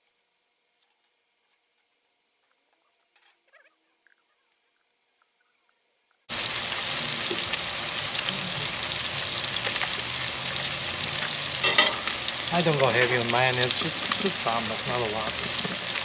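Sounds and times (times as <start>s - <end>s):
faint chirps: 2.5s - 6.2s
fish sizzling in a pan: 4.7s - 16.0s.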